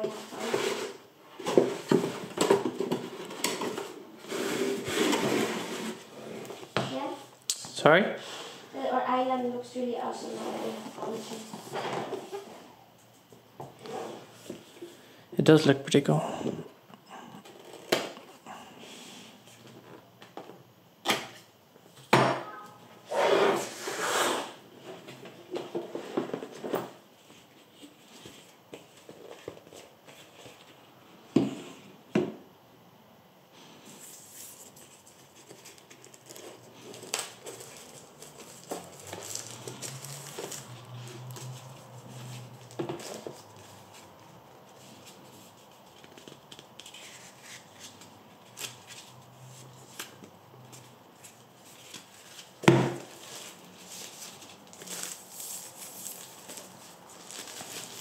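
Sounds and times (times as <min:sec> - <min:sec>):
cardboard scraping and sliding: 0:00.0 - 0:06.8, 0:10.2 - 0:12.7, 0:23.1 - 0:29.6
cardboard rubbing and scraping: 0:00.1 - 0:02.3, 0:04.2 - 0:06.5.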